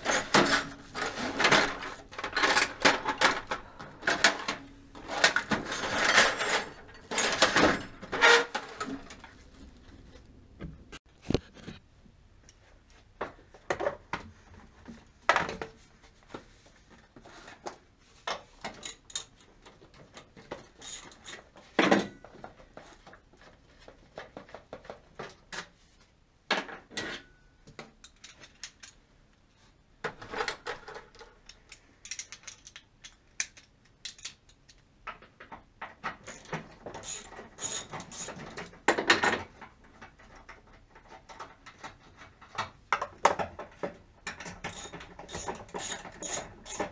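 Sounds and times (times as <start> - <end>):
hand tools clinking and knocking: 0.0 - 9.4, 18.6 - 22.7, 30.1 - 46.9.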